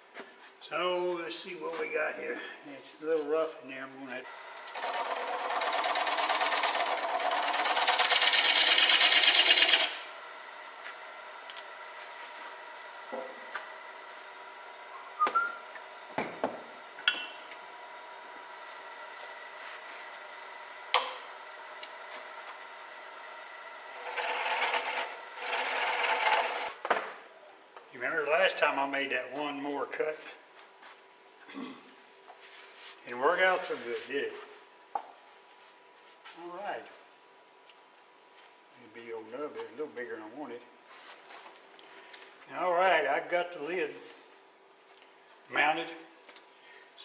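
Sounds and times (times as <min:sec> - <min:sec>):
lathe motor whine: 0:04.3 - 0:27.6
cutter scraping wood on a lathe: 0:04.7 - 0:10.1, 0:24.0 - 0:26.8.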